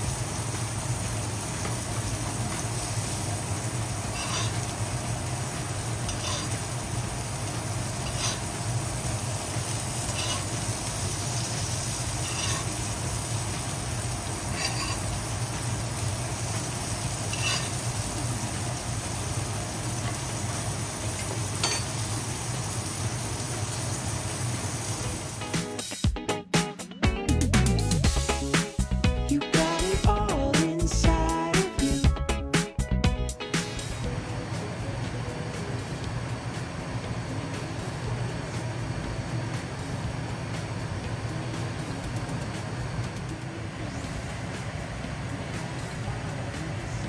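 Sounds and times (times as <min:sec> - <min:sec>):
steak sizzling in a frying pan: 0:00.0 - 0:26.0
metal spoon clinking on pan: 0:04.1 - 0:04.6, 0:06.1 - 0:06.6, 0:10.1 - 0:10.6, 0:12.2 - 0:12.7, 0:17.3 - 0:17.8, 0:21.6 - 0:22.0.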